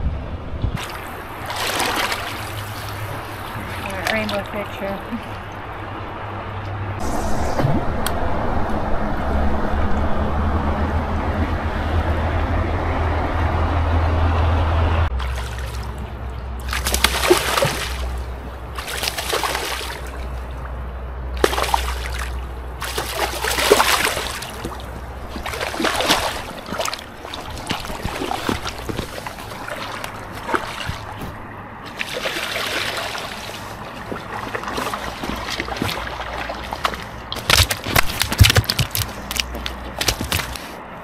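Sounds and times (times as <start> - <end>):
steady low hum: 0.0 - 31.9
river water splashing: 0.8 - 10.8, 15.1 - 41.0.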